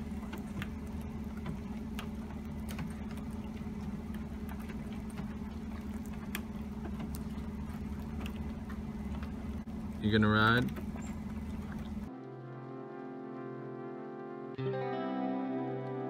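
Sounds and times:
raindrops tapping: 0:00.0 - 0:13.3
steady low hum: 0:00.0 - 0:14.4.

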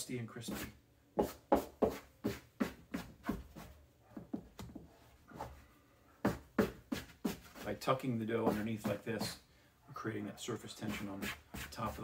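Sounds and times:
dough scraper scraping wooden counter: 0:10.8 - 0:12.0.

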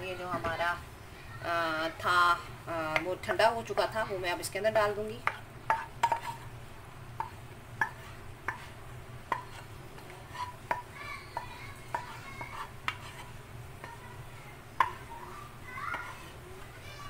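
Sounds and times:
spatula tapping bowl rim: 0:05.2 - 0:06.4, 0:07.2 - 0:14.1, 0:14.8 - 0:15.1
spatula scraping steel bowl: 0:05.7 - 0:06.5, 0:07.8 - 0:14.1.

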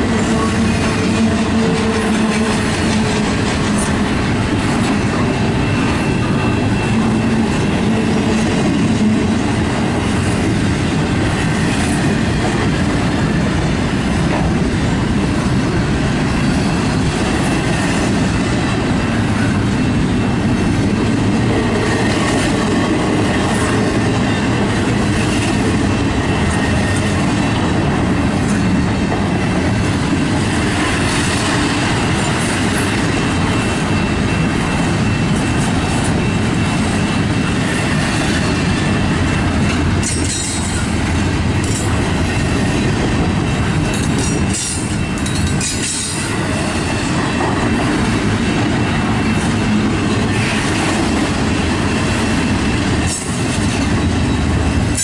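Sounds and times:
freight train rumbling past: 0:00.0 - 0:55.0
wheels clacking over rail joints: 0:20.4 - 0:55.0.

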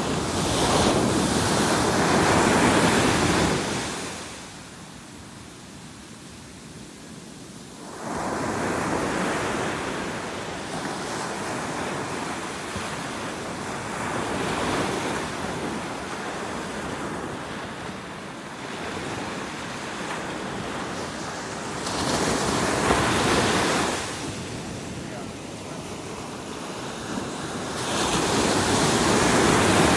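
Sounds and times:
surf breaking on beach: 0:18.7 - 0:29.9.

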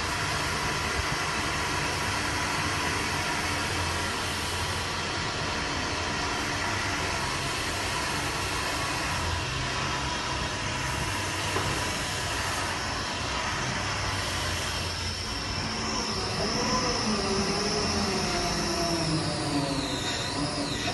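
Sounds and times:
crane slew drive hum and hiss: 0:00.0 - 0:20.9
thin high whine: 0:02.0 - 0:20.9.

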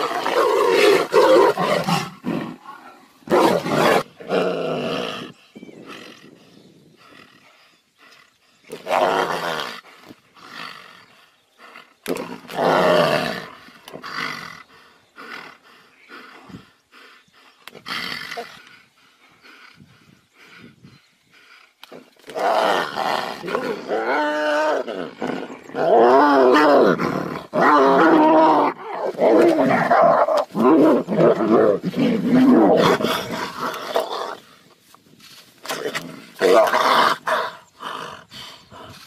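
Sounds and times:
tigers roaring: 0:00.0 - 0:05.3, 0:22.2 - 0:34.5
tigers growling: 0:00.0 - 0:06.4, 0:21.3 - 0:34.7, 0:35.6 - 0:39.0.

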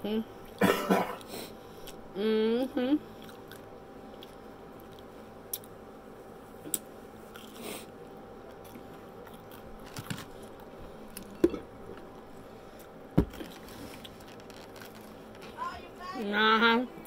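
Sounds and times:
person crunching and chewing: 0:03.1 - 0:05.8, 0:06.7 - 0:12.2, 0:12.8 - 0:15.4.

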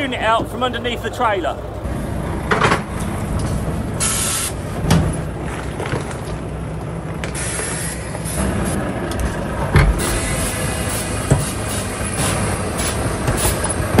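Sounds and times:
diesel engine running: 0:00.0 - 0:14.0
air hiss bursts: 0:04.0 - 0:04.6, 0:07.4 - 0:08.6, 0:10.0 - 0:13.7.

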